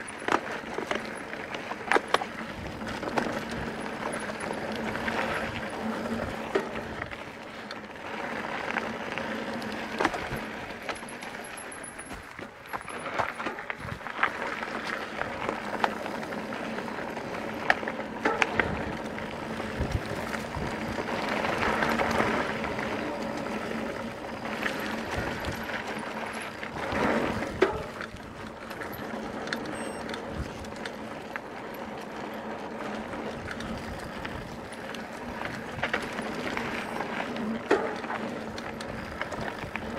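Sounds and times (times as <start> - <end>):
bike tyre and wind noise: 0.0 - 39.9
bike knocks and rattles: 9.2 - 16.6, 17.4 - 32.4, 33.1 - 39.9.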